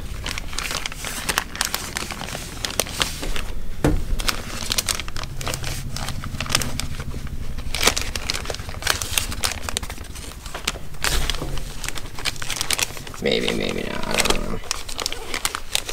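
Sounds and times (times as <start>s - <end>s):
plastic bag crinkling: 0.0s - 3.6s, 4.2s - 15.9s
thump: 3.8s - 4.2s.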